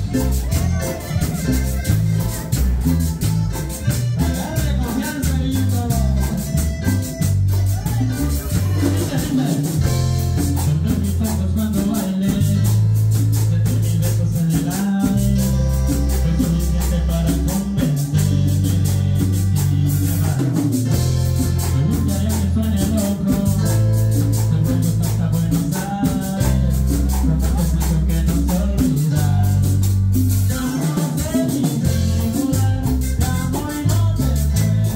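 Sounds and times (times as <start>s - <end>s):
person singing: 0.0s - 20.8s, 21.6s - 34.9s
congas: 0.0s - 34.9s
keyboard bass line: 0.0s - 34.9s.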